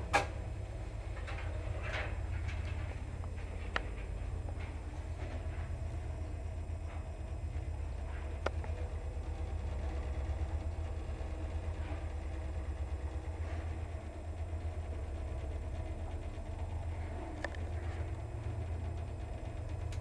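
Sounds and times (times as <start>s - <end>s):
elevator humming: 0.0s - 20.0s.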